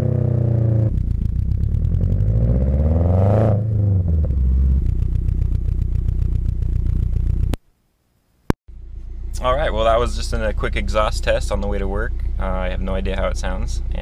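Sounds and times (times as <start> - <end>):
car engine exhaust revving: 0.0 - 7.6
low pulsing exhaust burble: 3.6 - 7.6, 8.7 - 14.0.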